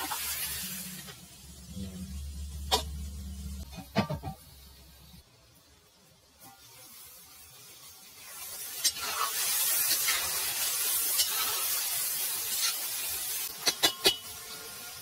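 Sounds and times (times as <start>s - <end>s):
chicken and onions sizzling in oil: 0.0s - 15.0s.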